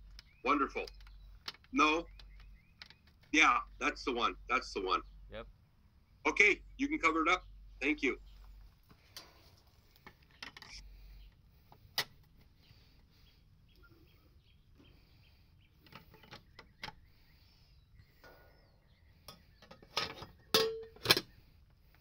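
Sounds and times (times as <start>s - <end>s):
metal lid snapping shut: 19.8s - 21.3s.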